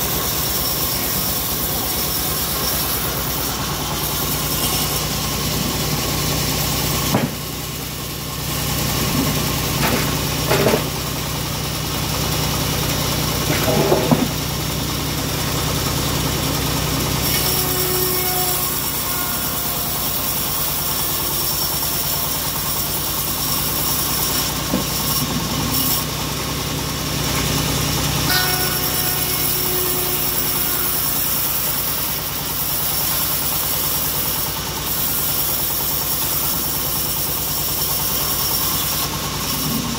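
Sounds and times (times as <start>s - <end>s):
band saw cutting log: 0.0s - 39.9s
stationary engine running: 0.0s - 39.9s
knocks of log being handled: 7.1s - 7.4s.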